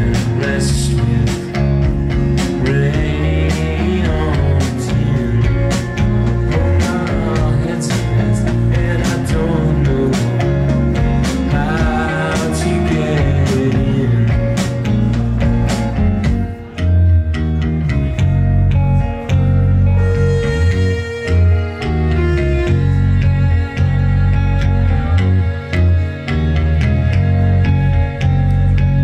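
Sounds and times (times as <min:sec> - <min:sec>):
man singing: 0:00.0 - 0:15.6
rock band playing: 0:00.0 - 0:29.0.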